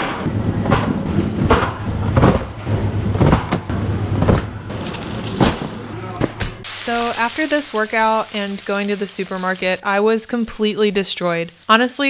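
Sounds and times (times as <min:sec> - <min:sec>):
packages knocking into wire cart: 0:04.7 - 0:06.3.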